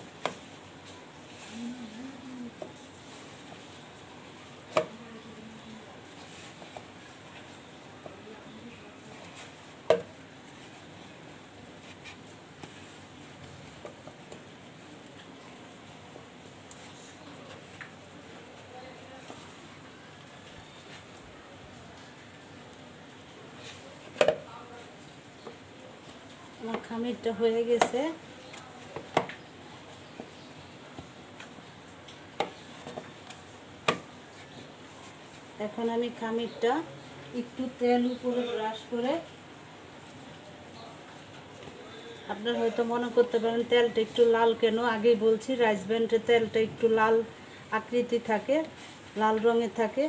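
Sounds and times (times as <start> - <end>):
dough squishing and patting: 0.0 - 18.1.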